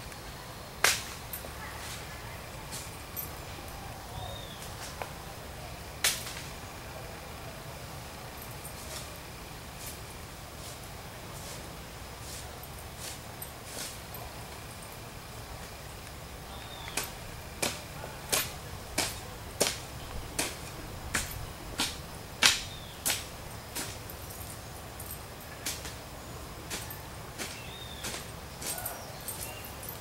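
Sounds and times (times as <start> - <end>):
hoe chopping clay soil: 16.6 - 24.2, 26.7 - 30.0.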